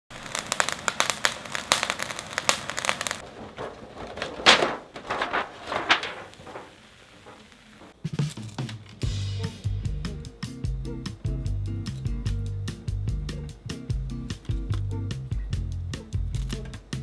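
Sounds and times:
aluminium foil crinkling: 0:00.1 - 0:09.0
popcorn crackling and popping in tray: 0:00.1 - 0:09.1, 0:16.2 - 0:17.0.

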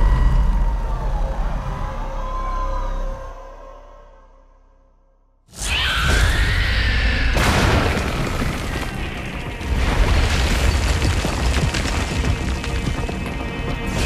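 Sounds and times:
dramatic film score: 0:00.0 - 0:14.0
booming blasts: 0:07.4 - 0:12.6.

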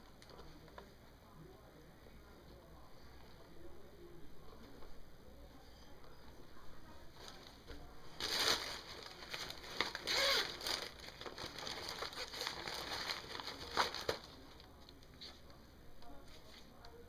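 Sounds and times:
tissue paper crinkling: 0:07.2 - 0:14.7
fabric bag rustling: 0:08.2 - 0:14.2.

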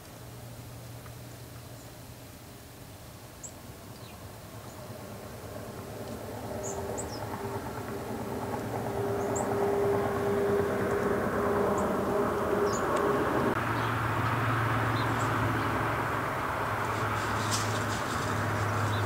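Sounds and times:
small birds chirping: 0:03.4 - 0:05.0, 0:06.5 - 0:07.4, 0:12.6 - 0:13.0, 0:13.6 - 0:19.0
mechanical rumble and hum: 0:08.4 - 0:19.0.

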